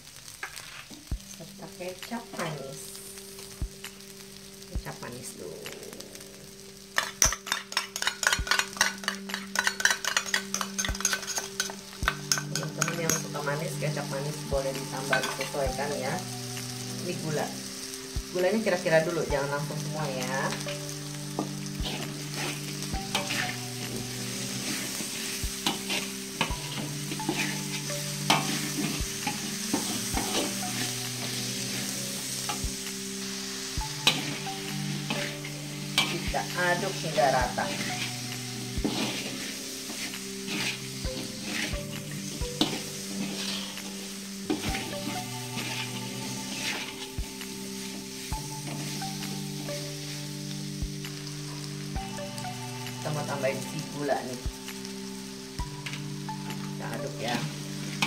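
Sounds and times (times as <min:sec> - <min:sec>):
utensils scraping a wok: 0:00.4 - 0:01.1, 0:06.9 - 0:13.4, 0:20.2 - 0:32.6, 0:33.8 - 0:50.4
spatula scraping and knocking pan: 0:07.0 - 0:13.3, 0:38.8 - 0:47.1.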